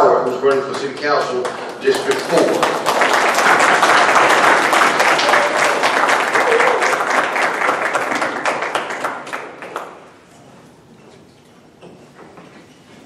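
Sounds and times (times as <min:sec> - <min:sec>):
audience applauding: 0:00.2 - 0:10.2.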